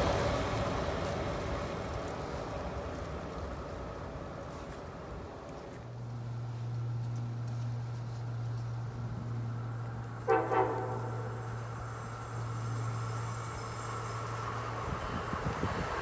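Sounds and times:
oncoming train rushing: 0.0s - 16.0s
train horn toot: 10.2s - 11.4s.

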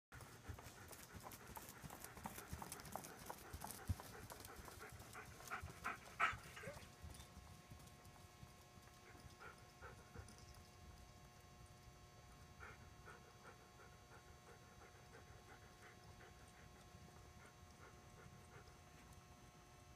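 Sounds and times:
pony hoofbeats trotting: 0.2s - 11.7s.

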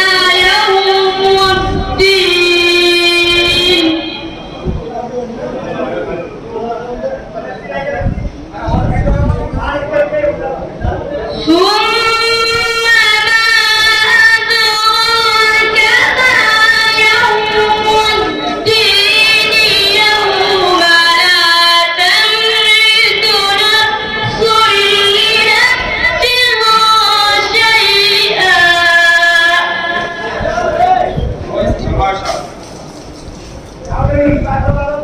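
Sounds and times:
boy chanting melodically: 0.0s - 4.8s, 11.1s - 31.3s.

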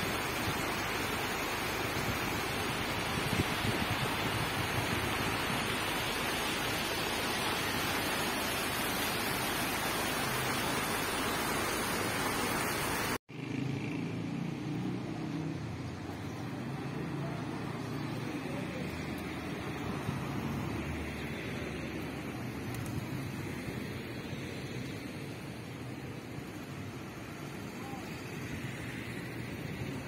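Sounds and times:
stream rushing over rocks: 0.0s - 13.2s.

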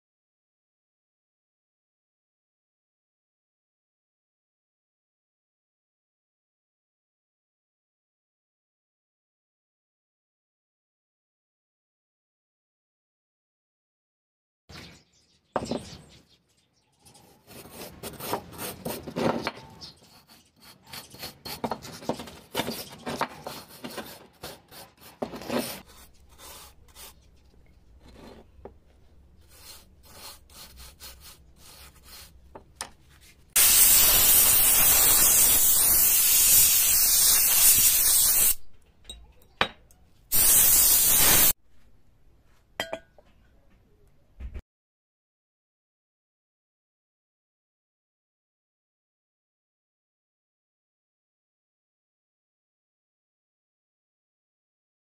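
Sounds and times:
brush scrubbing rusty metal: 29.4s - 32.4s
loud rushing hiss: 33.6s - 38.6s.

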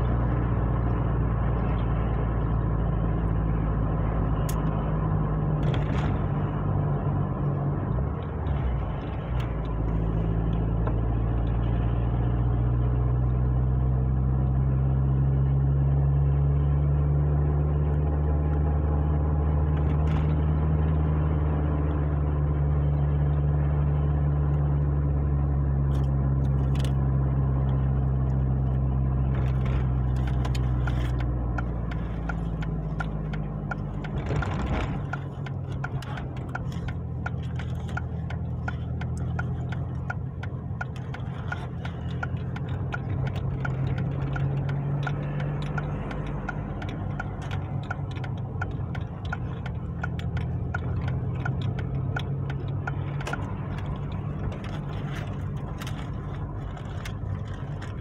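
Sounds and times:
car engine and road noise: 0.0s - 58.0s
turn signal ticking: 25.9s - 58.0s.

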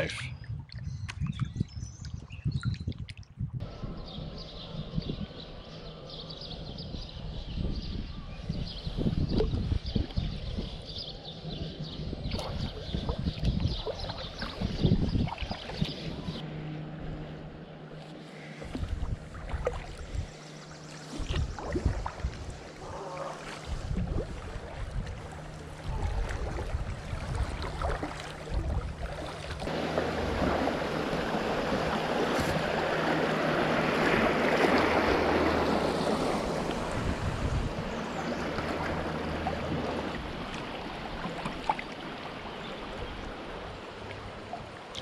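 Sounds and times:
wind rumble on microphone: 0.0s - 17.3s, 18.6s - 20.4s, 21.1s - 45.0s
paddle strokes splashing: 12.4s - 16.2s, 18.0s - 45.0s
water rushing over riffle: 21.1s - 42.2s.

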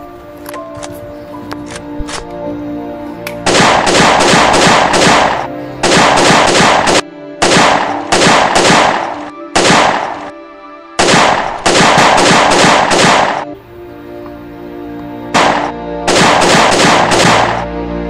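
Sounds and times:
background music: 0.0s - 18.0s
automatic gunfire bursts: 3.4s - 10.3s, 11.0s - 13.5s, 15.3s - 17.6s.

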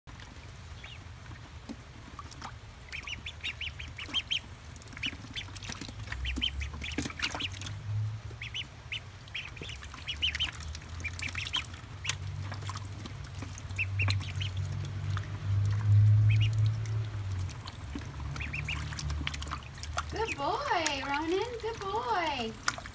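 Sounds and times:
ducklings peeping: 0.1s - 22.9s
low rumble: 7.5s - 21.7s.

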